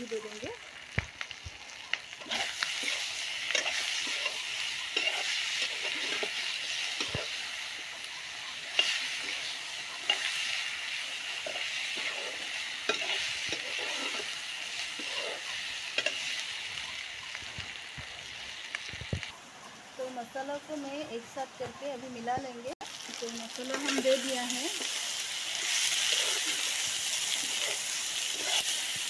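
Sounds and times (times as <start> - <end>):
vegetables sizzling in hot oil: 0.0 - 29.0
spatula scraping pan: 2.2 - 7.5, 8.7 - 16.5, 25.6 - 29.0.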